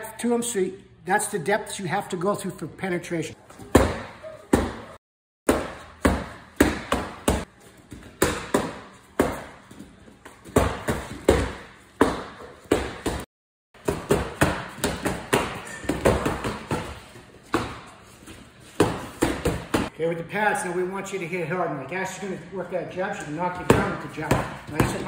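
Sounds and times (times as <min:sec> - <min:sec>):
punches hitting strike pads: 0:05.5 - 0:07.5, 0:08.2 - 0:09.6, 0:10.5 - 0:13.2, 0:13.8 - 0:17.8.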